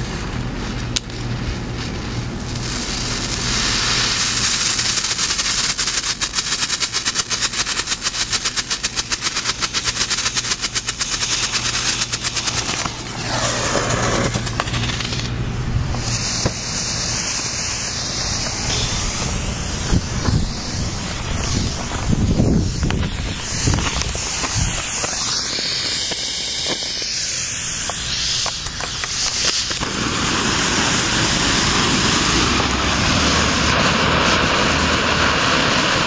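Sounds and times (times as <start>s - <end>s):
smoke bomb hissing and sputtering: 0.0s - 36.0s.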